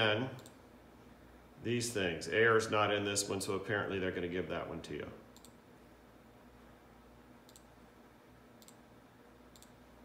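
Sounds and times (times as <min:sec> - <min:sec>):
computer mouse clicks: 0:00.4 - 0:00.6, 0:05.3 - 0:05.6, 0:07.4 - 0:07.7, 0:08.6 - 0:08.8, 0:09.5 - 0:09.8.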